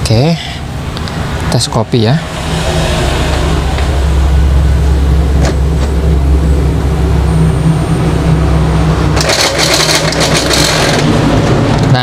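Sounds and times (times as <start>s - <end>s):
road traffic rumble: 0.0s - 12.0s
printer crackling rattle: 9.2s - 11.2s.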